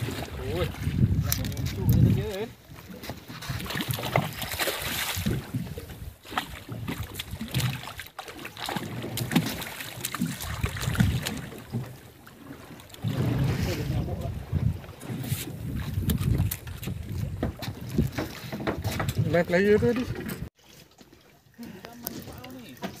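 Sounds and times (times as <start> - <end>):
wind buffeting microphone: 0.0 - 7.9, 10.2 - 11.9, 13.0 - 20.5
fish splashing: 3.5 - 13.5.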